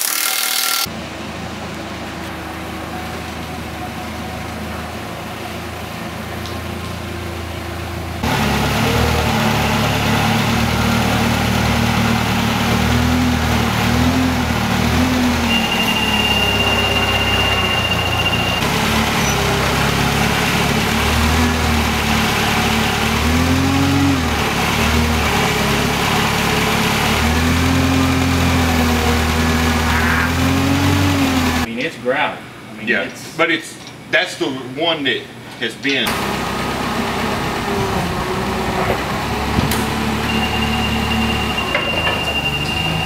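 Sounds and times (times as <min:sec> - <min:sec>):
forklift engine revving: 0:07.8 - 0:31.7, 0:36.1 - 0:43.0
thin high whine: 0:15.5 - 0:18.6.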